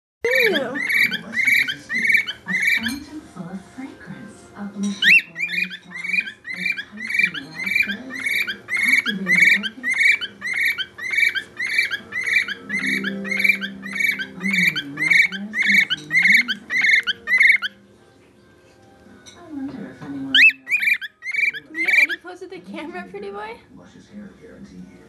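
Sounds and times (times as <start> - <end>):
parrot chirping: 0.3 - 3.0, 5.0 - 17.8, 20.3 - 22.4.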